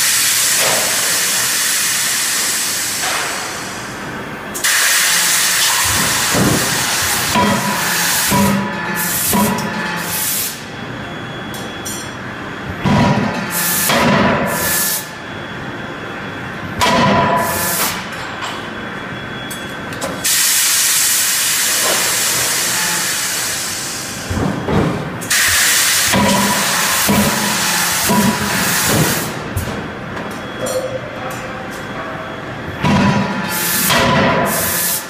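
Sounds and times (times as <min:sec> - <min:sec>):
steam hissing: 0:04.6 - 0:08.4, 0:25.3 - 0:29.3.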